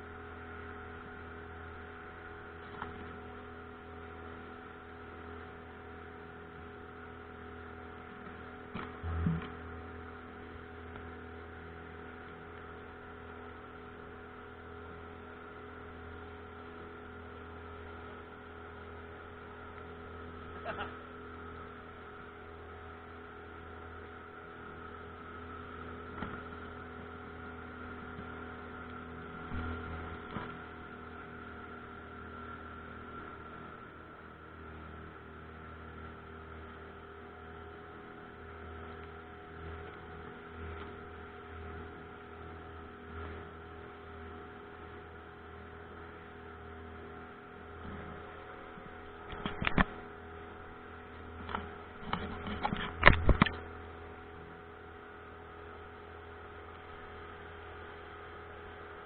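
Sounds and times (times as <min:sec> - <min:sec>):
outboard motor droning: 0:00.0 - 0:59.0.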